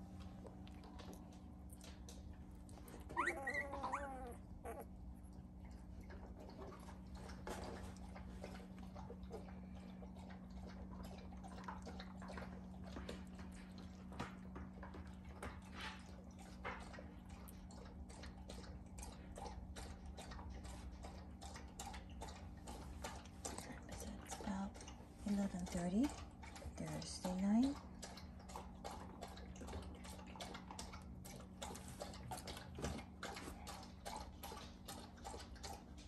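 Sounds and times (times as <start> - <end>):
steady low hum: 0.0 - 31.7
faint squeaks and clicks: 2.7 - 4.9
puppies whimpering: 3.0 - 4.9.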